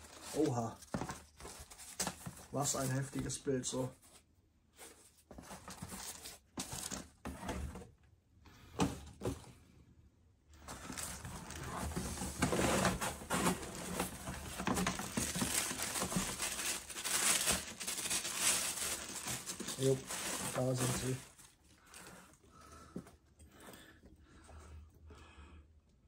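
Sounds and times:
paper rustling and crinkling: 0:00.0 - 0:03.4, 0:04.0 - 0:07.8, 0:10.6 - 0:22.9.

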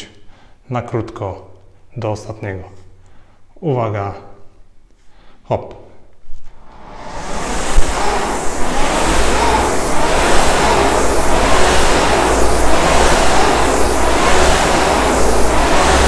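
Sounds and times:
rowing machine flywheel whooshing: 0:06.5 - 0:16.0.

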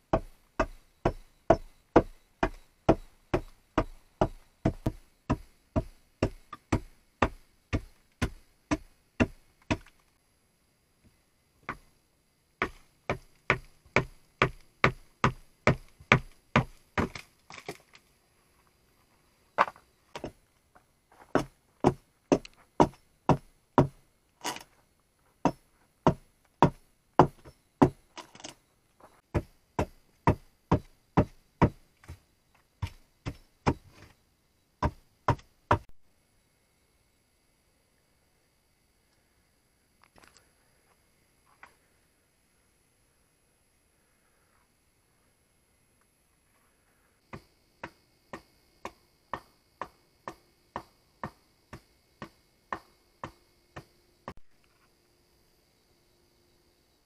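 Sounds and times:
hammering on wood: 0:00.1 - 0:09.9, 0:12.6 - 0:17.2, 0:21.3 - 0:24.0, 0:25.4 - 0:28.0, 0:29.3 - 0:32.2, 0:34.8 - 0:35.9, 0:47.3 - 0:54.4.

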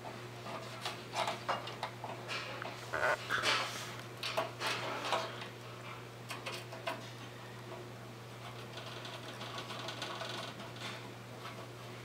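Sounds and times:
steady low hum: 0:02.0 - 0:04.3.

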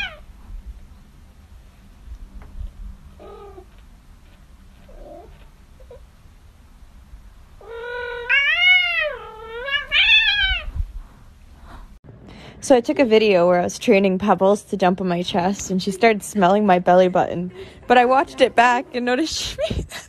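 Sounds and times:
kitten meowing: 0:07.6 - 0:10.8.

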